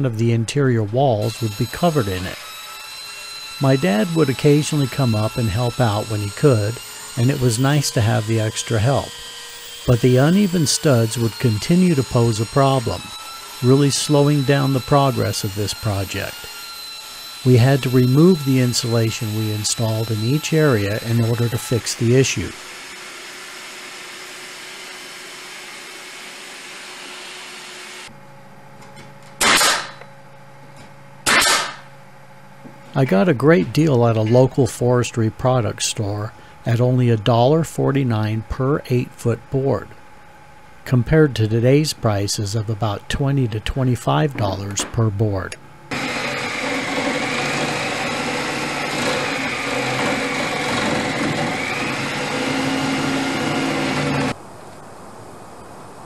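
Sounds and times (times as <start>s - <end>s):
reciprocating saw cutting wood: 1.2s - 28.1s, 45.9s - 54.4s
pneumatic nail gun firing: 29.4s - 30.1s, 31.2s - 31.9s.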